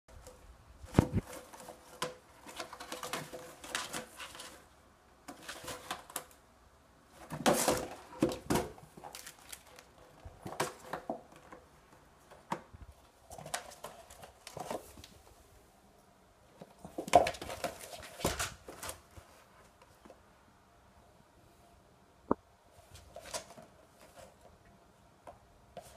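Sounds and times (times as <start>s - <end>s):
kitten scratching and rustling: 0.2s - 6.4s, 7.1s - 15.4s, 22.8s - 24.5s.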